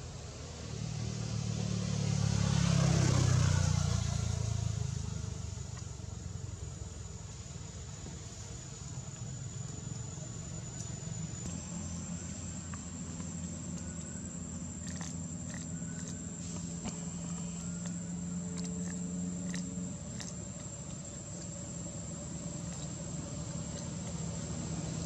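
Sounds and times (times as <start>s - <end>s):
low steady hum: 3.8s - 25.0s
high-pitched insect drone: 7.5s - 25.0s.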